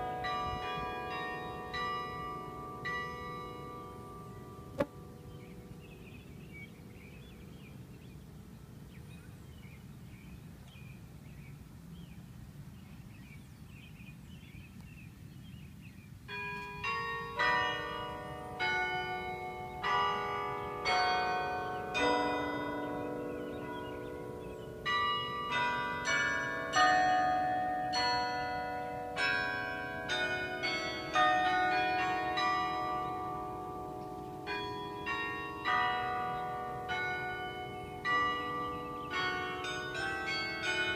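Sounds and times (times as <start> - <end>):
carillon bells playing a tune: 0.0 - 4.4, 16.3 - 40.9
faint lingering bell hum: 0.0 - 8.1, 16.3 - 40.9.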